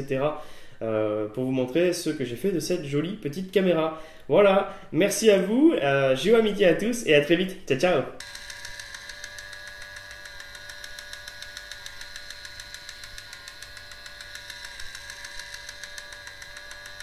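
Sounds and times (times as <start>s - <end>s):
small geared motor whining and ticking: 8.2s - 17.0s.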